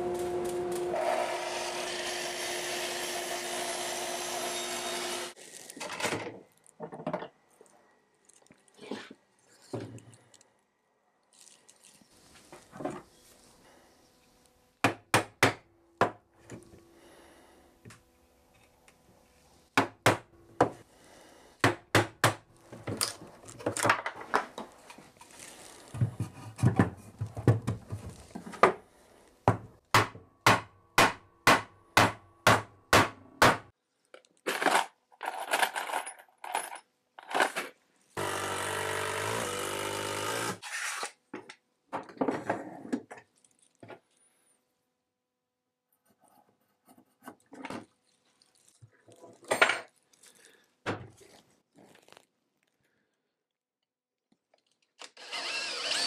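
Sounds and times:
small motor running: 55.2 - 56.0.

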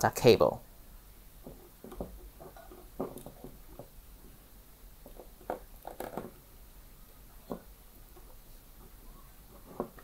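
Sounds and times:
small clicks and rustles: 1.4 - 4.4.

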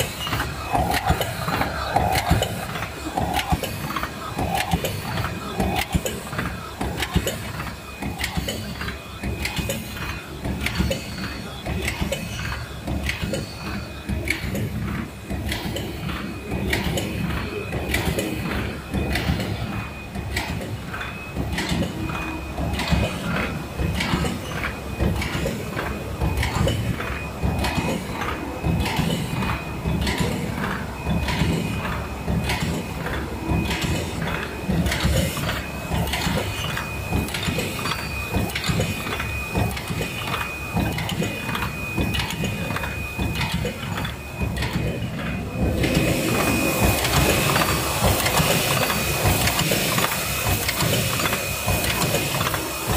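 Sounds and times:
machine high whine: 0.0 - 52.9
machine mechanical clatter: 0.0 - 52.9.

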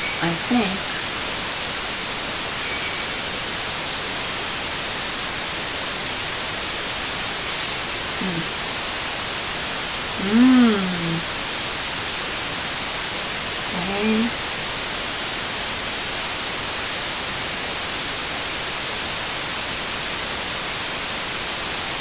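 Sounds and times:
recording hiss: 0.0 - 22.0
low voiced murmur: 10.2 - 11.3.

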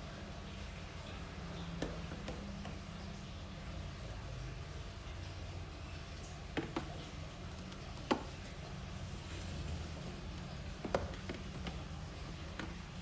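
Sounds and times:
plastic tub knocking on tiled floor: 6.5 - 7.0, 10.7 - 12.8.

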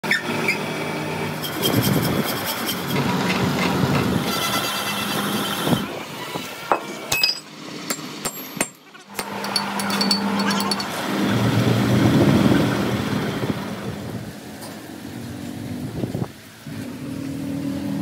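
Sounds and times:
metal lathe cutting steel: 9.0 - 12.0.

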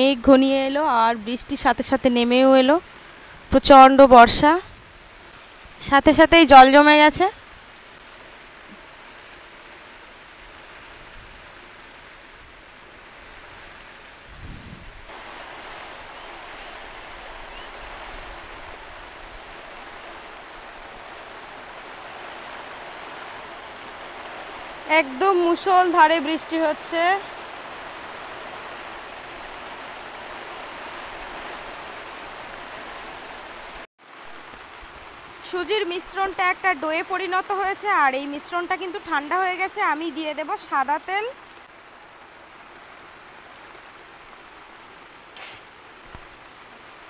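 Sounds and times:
heavy rain pouring: 0.0 - 47.0.

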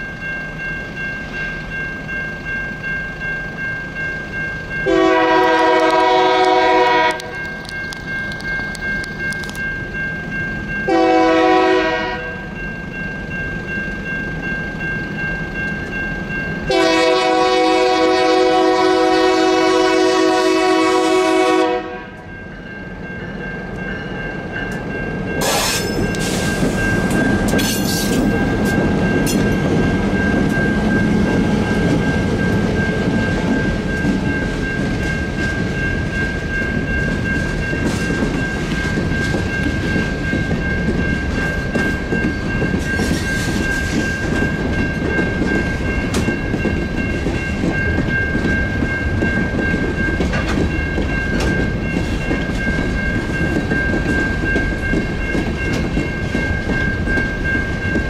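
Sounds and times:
crossing bell ringing: 0.0 - 58.0
locomotive horn blasts: 4.8 - 7.4, 10.9 - 12.4, 16.7 - 22.3
train wheels clickety-clacking: 4.8 - 12.0, 23.6 - 58.0.

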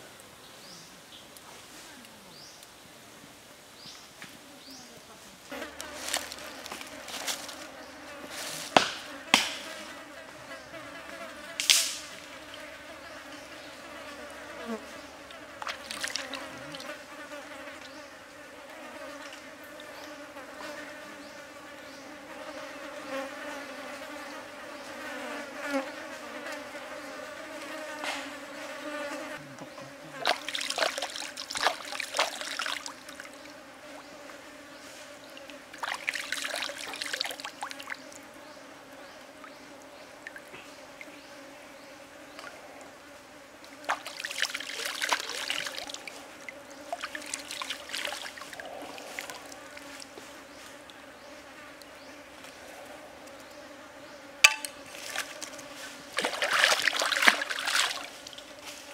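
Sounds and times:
insects buzzing: 3.7 - 58.9
water splashing and sloshing: 15.6 - 16.4, 30.2 - 33.3, 35.8 - 37.6, 43.8 - 46.2, 46.9 - 49.5, 54.6 - 58.4.

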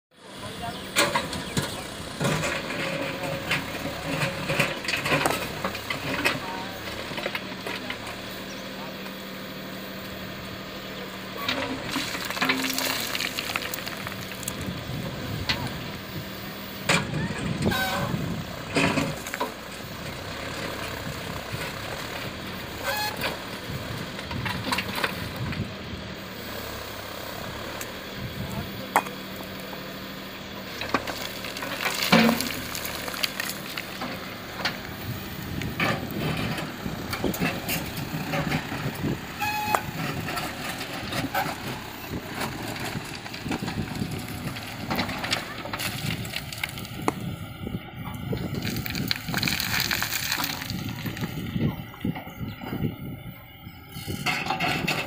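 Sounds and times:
tractor diesel engine running: 0.1 - 55.0
backhoe bucket clanking on stones: 11.4 - 14.6, 30.8 - 34.8
stones clattering against bucket: 11.9 - 14.6, 48.6 - 51.3.

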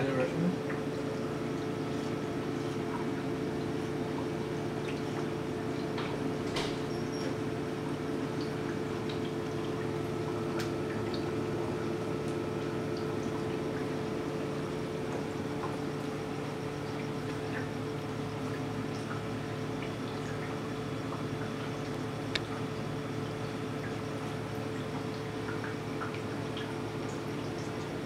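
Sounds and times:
pump hum: 0.0 - 28.0
ticks of drips: 0.0 - 28.0
water trickling and dripping: 0.1 - 28.0.

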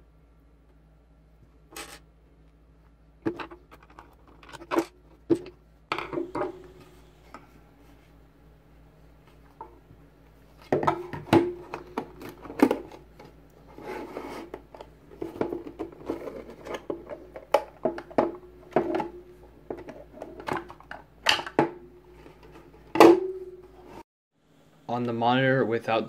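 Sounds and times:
short hollow ring: 23.0 - 23.7.

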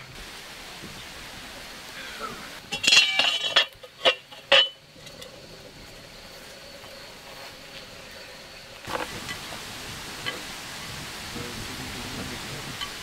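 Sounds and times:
high insect drone: 1.9 - 13.0
metal lid clinking against pot: 2.7 - 4.8.

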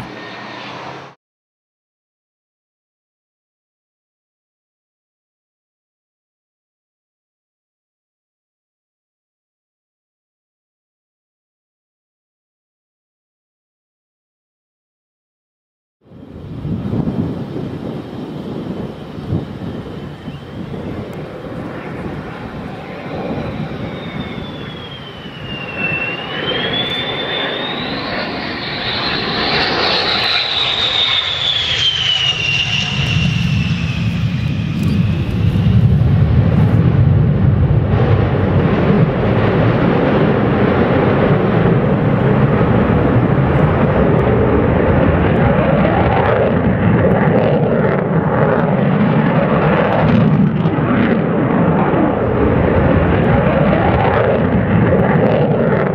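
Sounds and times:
jet engine whine: 0.0 - 1.2, 16.0 - 55.9
low jet noise: 0.0 - 1.2, 16.0 - 55.9.

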